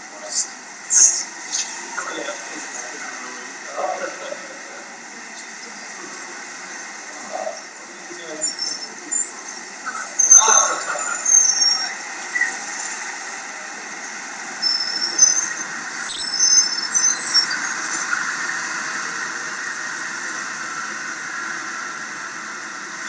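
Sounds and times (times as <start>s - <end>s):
traffic hum: 0.0s - 23.0s
short high-pitched squeals: 0.3s - 13.4s, 14.0s - 19.2s.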